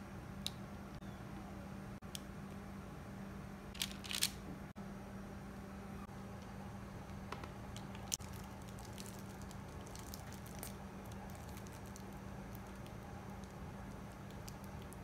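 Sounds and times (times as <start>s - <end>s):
steady low hum: 0.0s - 15.0s
small clicks and crackles: 7.7s - 15.0s
parchment paper crinkling: 7.8s - 15.0s
piping bag squished: 7.8s - 15.0s.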